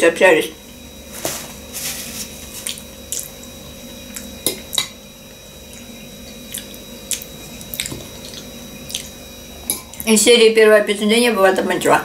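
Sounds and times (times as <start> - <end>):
person chewing wet food: 2.3 - 4.9, 5.6 - 10.1.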